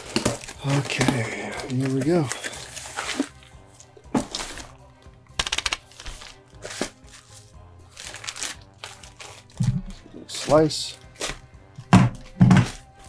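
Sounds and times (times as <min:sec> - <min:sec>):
quiet background music: 0:00.0 - 0:13.0
quick clicks: 0:05.4 - 0:05.8.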